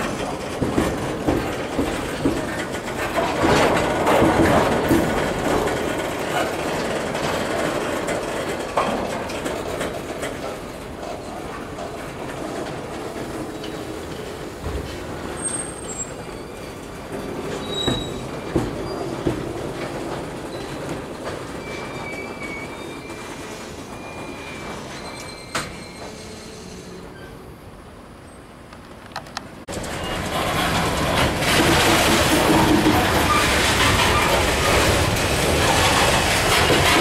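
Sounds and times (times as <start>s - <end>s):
freight train wheels rumbling on rail: 0.0s - 37.0s
high-pitched wheel squeals: 15.3s - 19.2s, 21.6s - 27.6s.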